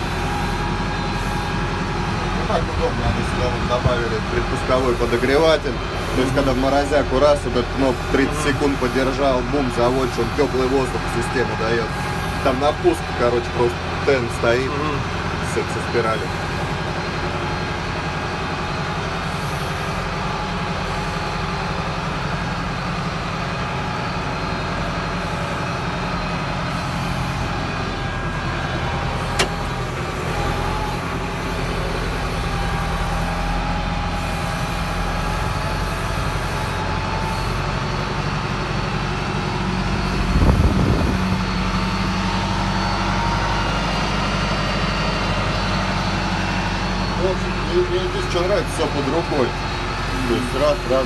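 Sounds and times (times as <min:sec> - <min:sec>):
tractor diesel engine running: 0:00.0 - 0:51.0
sharp click: 0:29.3 - 0:29.8.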